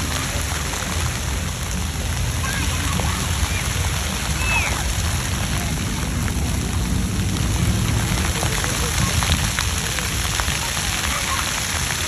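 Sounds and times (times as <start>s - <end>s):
fountain water spattering on stone: 0.0s - 12.0s
children's voices: 2.2s - 6.3s, 8.2s - 12.0s.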